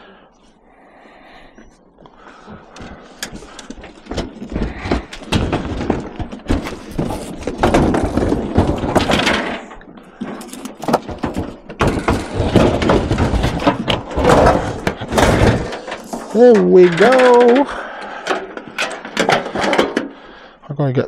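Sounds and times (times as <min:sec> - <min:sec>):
scrap metal scraping and clattering: 0:03.2 - 0:20.3.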